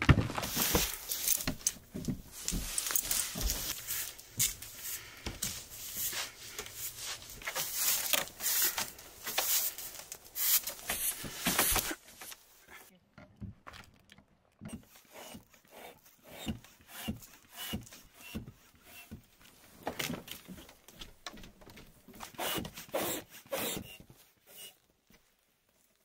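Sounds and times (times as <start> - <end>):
nylon tent fabric rustling: 0.0 - 12.6.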